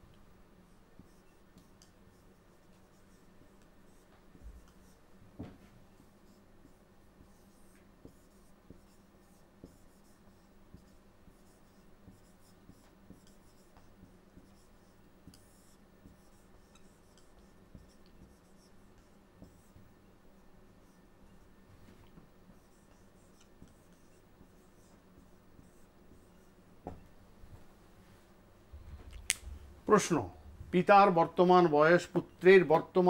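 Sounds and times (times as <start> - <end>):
low steady hum: 0.0 - 33.0
marker squeaking on whiteboard: 1.0 - 5.0, 7.2 - 21.5, 22.1 - 27.0
soft knock: 5.4 - 5.6, 26.8 - 27.1.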